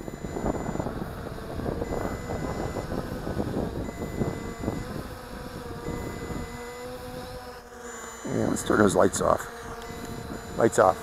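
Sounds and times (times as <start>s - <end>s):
two-tone warning beep: 0.0s - 1.0s, 1.8s - 3.0s, 3.8s - 5.0s, 5.8s - 6.8s, 7.8s - 11.0s
wind buffeting microphone: 0.0s - 7.6s, 9.7s - 10.8s
drone motors humming: 0.0s - 11.0s.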